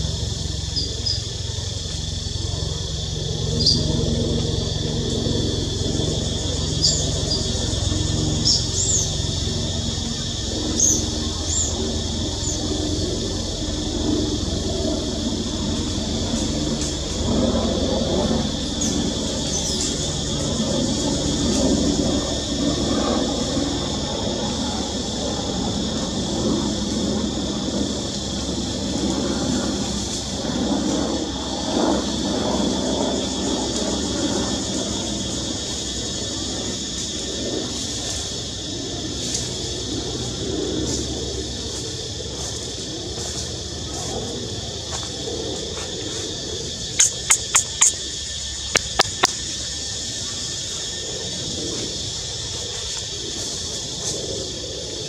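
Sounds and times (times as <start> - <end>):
steady high-pitched hiss: 0.0 - 55.0
short sharp chirps: 47.0 - 48.0
quick clicks: 47.0 - 48.1, 48.7 - 49.4.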